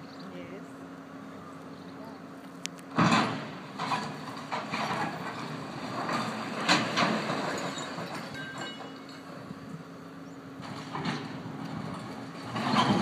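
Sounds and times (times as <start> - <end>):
steady low hum: 0.0 - 6.7.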